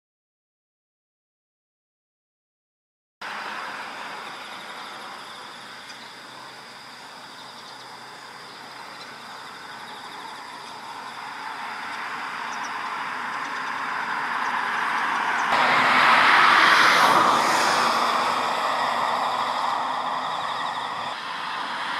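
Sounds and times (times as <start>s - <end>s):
steady rushing noise: 9.9s - 21.9s.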